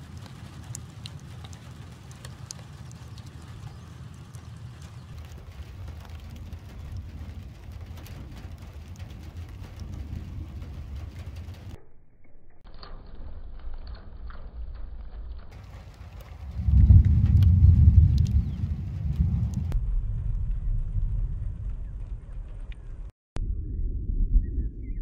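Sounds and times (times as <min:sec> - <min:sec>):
light ticks: 0:00.0 - 0:11.8, 0:17.2 - 0:19.7
wind rumbling on microphone: 0:00.0 - 0:11.8, 0:12.7 - 0:25.0.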